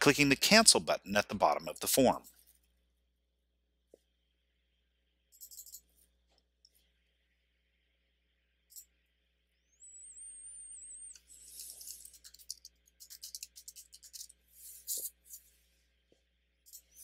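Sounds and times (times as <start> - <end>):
faint high whistle-like tone: 6.8 - 12.0.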